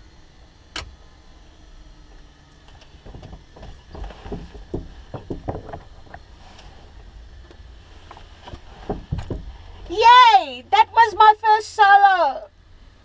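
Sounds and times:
low hum: 0.0s - 13.0s
knocks and bumps: 3.0s - 6.3s, 7.5s - 10.2s.

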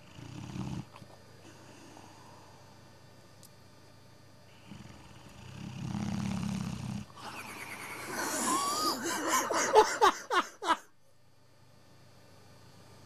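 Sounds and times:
dog snoring: 0.0s - 2.7s, 4.5s - 9.0s.

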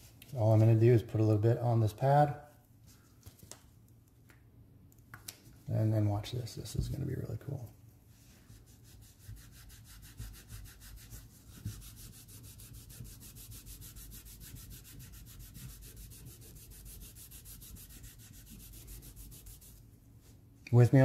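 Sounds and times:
cotton pad scrubbing metal: 8.5s - 19.9s.

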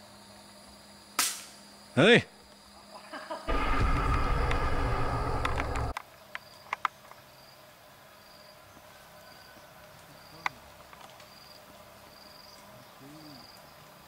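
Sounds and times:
loud edited-in sound: 3.5s - 6.0s
insect chirping: 11.2s - 14.0s.

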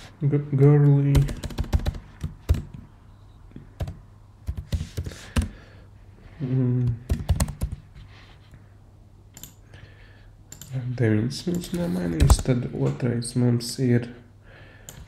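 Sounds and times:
computer keyboard typing: 1.1s - 2.8s, 3.8s - 5.6s, 7.1s - 7.8s, 9.4s - 9.6s, 10.5s - 10.8s.

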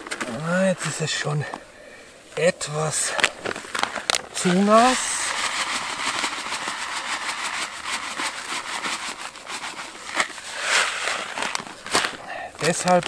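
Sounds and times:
dry mix pouring into plastic bucket: 3.0s - 13.0s.

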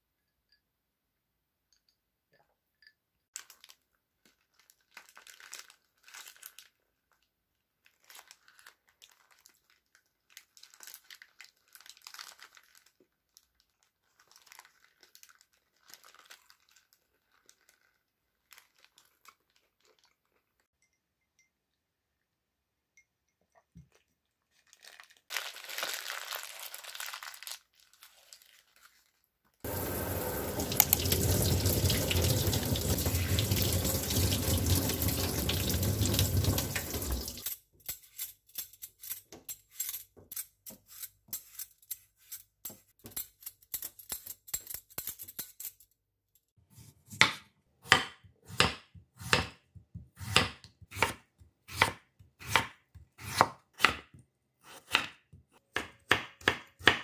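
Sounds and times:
tap water running into sink: 29.7s - 37.4s
knife chopping on wooden board: 46.8s - 54.1s, 54.7s - 57.0s.

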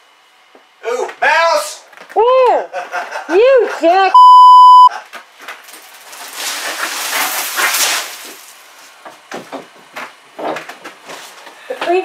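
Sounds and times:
insulation tearing and rustling: 5.2s - 9.0s.

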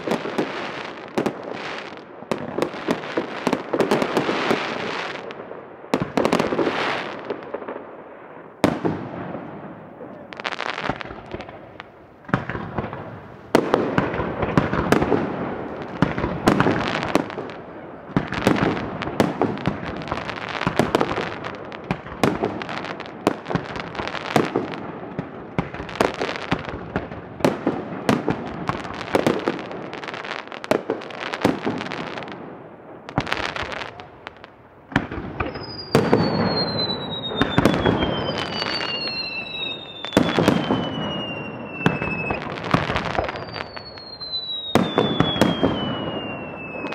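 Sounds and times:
fireworks bangs and crackling: 0.0s - 46.9s
whistling fireworks: 0.0s - 46.9s.

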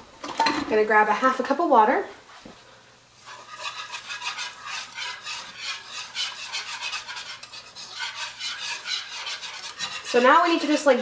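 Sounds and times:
whisk scraping a skillet: 3.2s - 11.0s.

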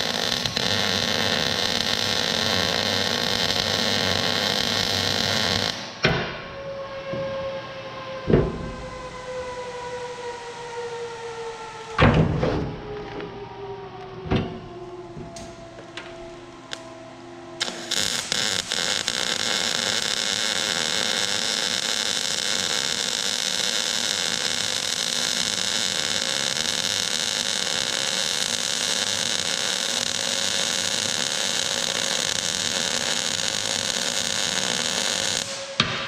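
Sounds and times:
arc welding crackling hiss: 0.0s - 6.0s, 17.6s - 35.9s.

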